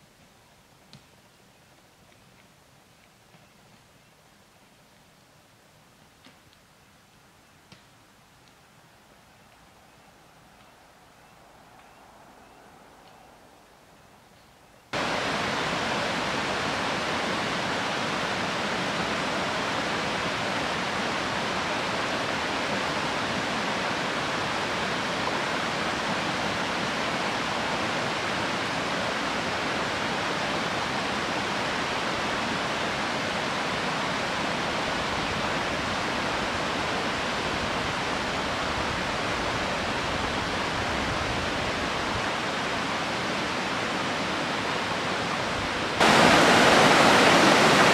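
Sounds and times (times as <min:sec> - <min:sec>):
creek rushing over rocks: 0:14.9 - 0:47.9.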